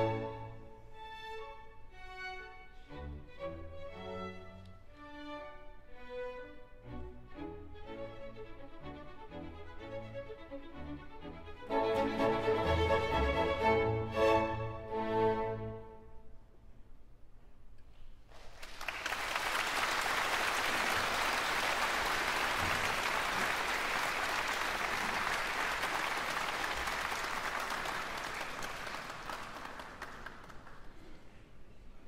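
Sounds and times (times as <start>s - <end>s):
audience applauding: 18.3s - 31.3s.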